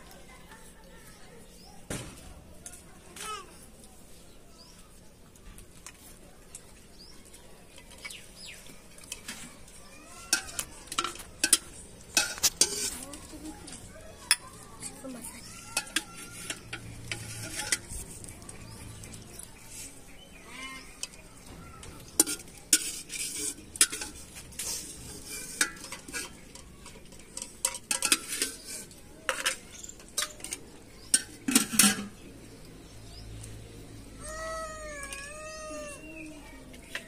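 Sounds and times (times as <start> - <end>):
steel plates and bowls clinking: 10.1 - 20.0, 22.0 - 32.2
metal ladle scraping in a pot: 10.2 - 13.1, 15.5 - 19.1, 22.1 - 32.2.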